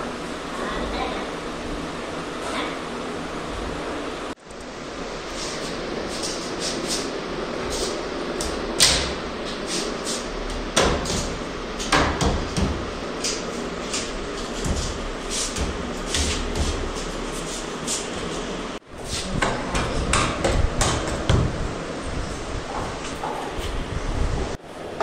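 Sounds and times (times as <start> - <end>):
steady hiss: 3.9 - 11.8.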